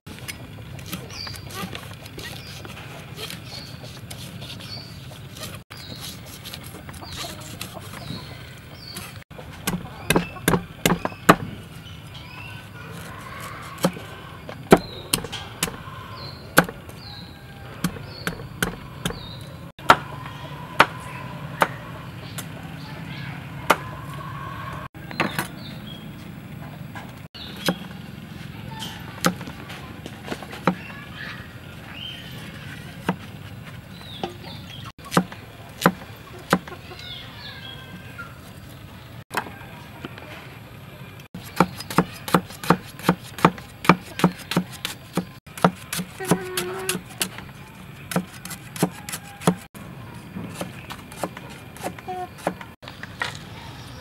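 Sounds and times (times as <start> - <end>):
cleaver chopping on wooden block: 9.6 - 11.6, 14.7 - 15.8, 16.6 - 16.8, 17.8 - 20.1, 35.0 - 36.7, 41.4 - 47.4, 48.1 - 49.7, 50.5 - 52.7.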